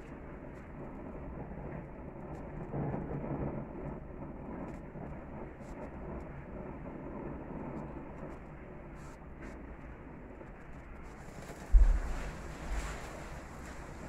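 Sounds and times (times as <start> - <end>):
gas burner flames rushing: 11.0 - 14.0.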